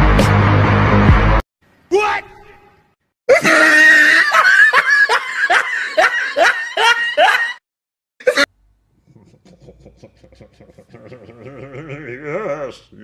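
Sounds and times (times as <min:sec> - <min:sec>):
person laughing hard: 0:03.3 - 0:07.6, 0:08.2 - 0:12.8.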